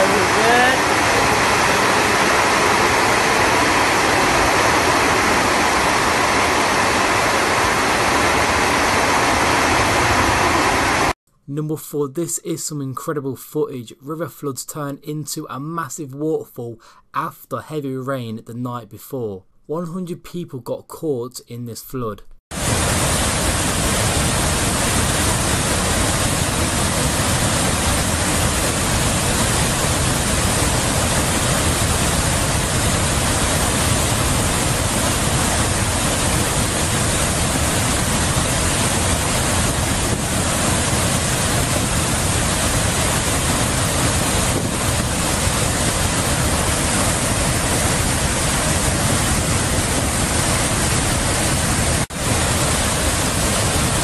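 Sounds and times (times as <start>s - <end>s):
river rushing over waterfall: 0.0s - 11.2s, 22.6s - 54.0s.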